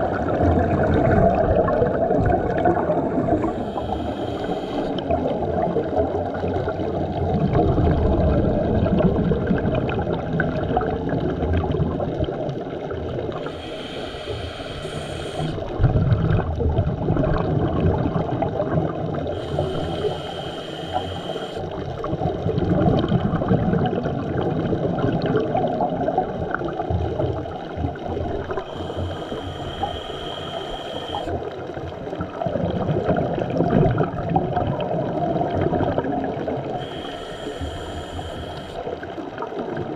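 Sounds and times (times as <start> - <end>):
exhaled bubbles rumbling: 0.0 - 39.9
hissing regulator inhalations: 3.3 - 5.2, 13.3 - 15.7, 19.3 - 21.8, 28.5 - 31.4, 36.7 - 39.0.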